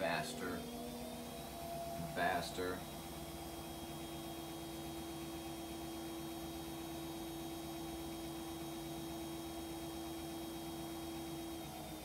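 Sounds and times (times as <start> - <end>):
washing machine spinning: 0.0 - 12.0.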